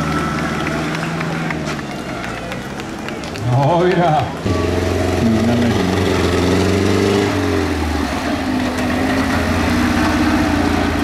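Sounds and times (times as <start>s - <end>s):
tractor engine revving: 4.2s - 11.0s.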